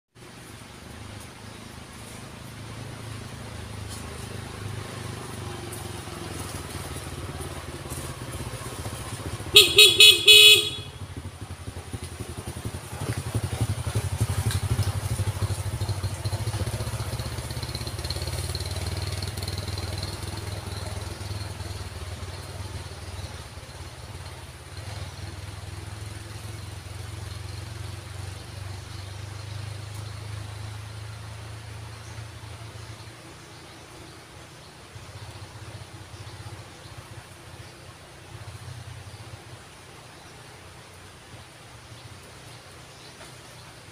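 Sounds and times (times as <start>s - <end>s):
motorcycle engine droning: 1.4s - 39.7s
vehicle horn tooting: 9.5s - 11.2s.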